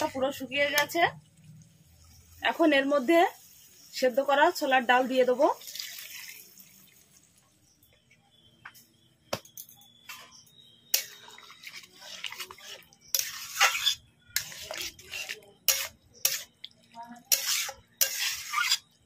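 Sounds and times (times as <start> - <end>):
metal spatula scraping pan: 10.9 - 16.5, 17.2 - 19.0
lentils sliding into metal pan: 11.0 - 16.5, 17.3 - 18.8.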